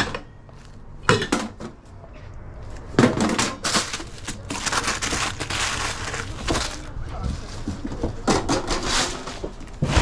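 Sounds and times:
paper rustling and crinkling: 3.3 - 10.0.

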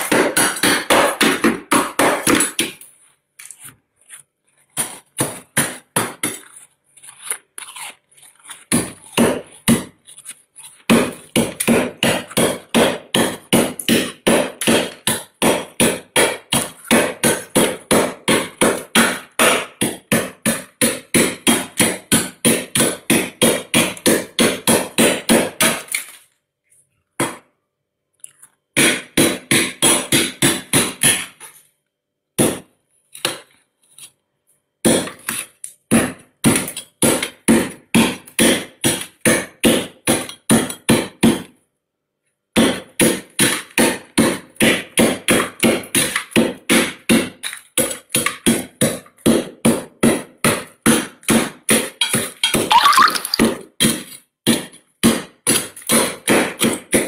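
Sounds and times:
metal spoon scraping freezer frost: 2.9 - 12.7, 33.0 - 34.4, 35.1 - 35.8.

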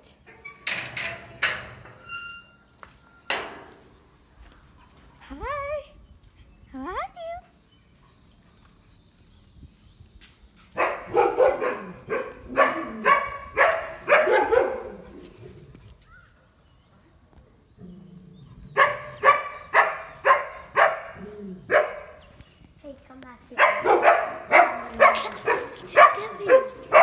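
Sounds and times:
dog barking: 10.8 - 15.1, 18.8 - 22.2, 23.6 - 27.0.

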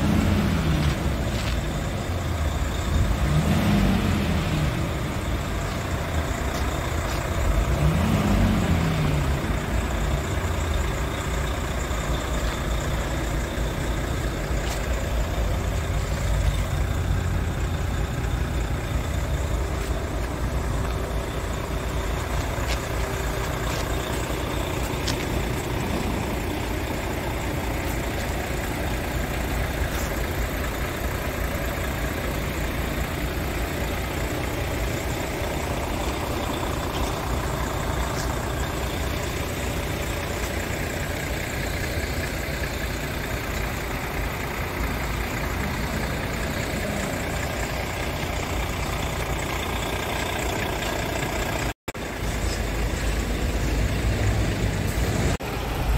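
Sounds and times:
diesel engine idling: 0.0 - 55.9.

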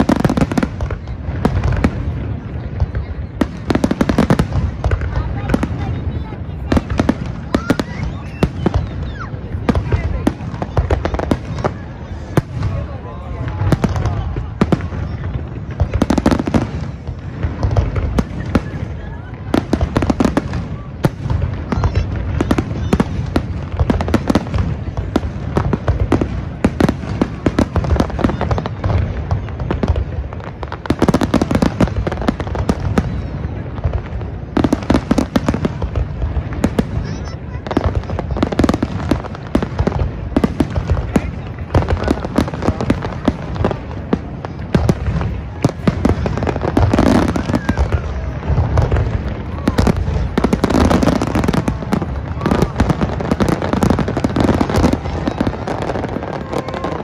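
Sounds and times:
low rumble of firework barrage: 0.0 - 57.0.

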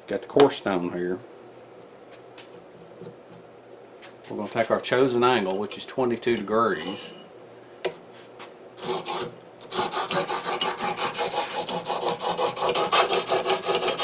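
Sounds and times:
hone scraping steel blade: 8.8 - 14.0.

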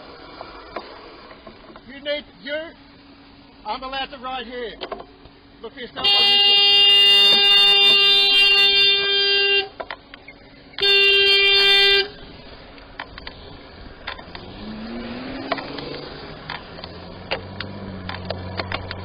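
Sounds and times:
horn blasts: 6.0 - 9.8, 10.8 - 12.2
car engine pulling away: 12.1 - 19.0.

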